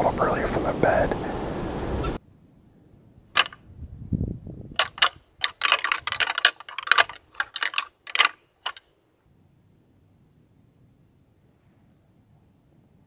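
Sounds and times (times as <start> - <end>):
deer antlers clacking together: 3.4 - 3.6, 4.8 - 8.9.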